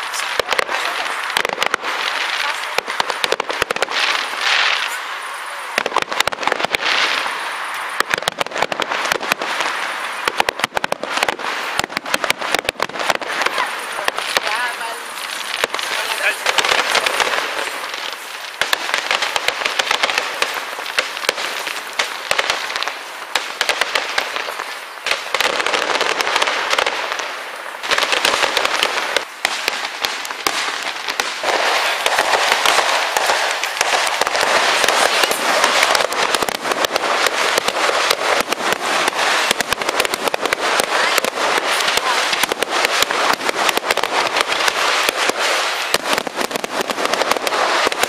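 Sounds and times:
fireworks crackling and banging: 0.0s - 48.0s.

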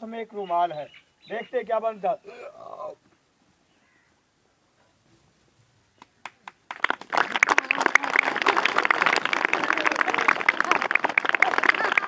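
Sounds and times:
children applauding: 6.2s - 12.0s.

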